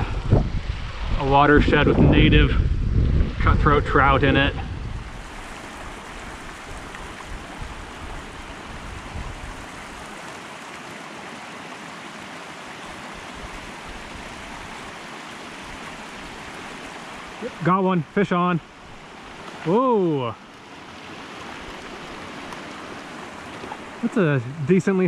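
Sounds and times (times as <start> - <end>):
wind rumble on microphone: 0.0 - 10.2
creek water rushing: 0.0 - 25.0.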